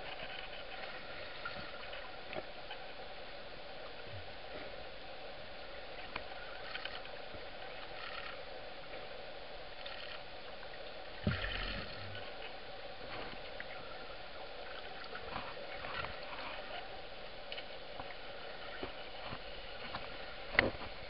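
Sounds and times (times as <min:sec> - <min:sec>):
underwater clicks and crackles: 0:00.0 - 0:03.1, 0:05.9 - 0:21.0
dull thump with water rush: 0:11.0 - 0:21.0
underwater hiss: 0:11.1 - 0:12.4.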